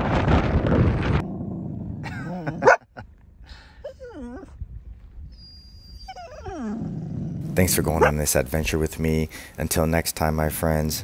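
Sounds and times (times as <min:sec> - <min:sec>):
dog whining: 0:03.8 - 0:04.6, 0:05.3 - 0:08.2.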